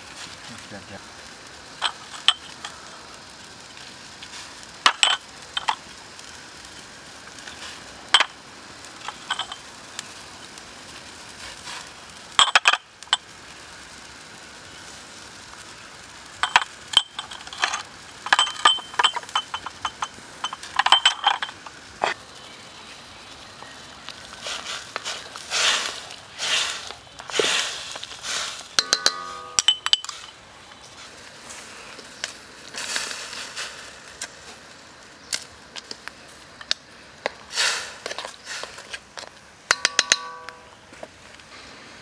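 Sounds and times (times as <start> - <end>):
faint steady hiss: 0.0 - 42.0
spoon clinking against wok: 28.8 - 30.3, 39.7 - 40.7.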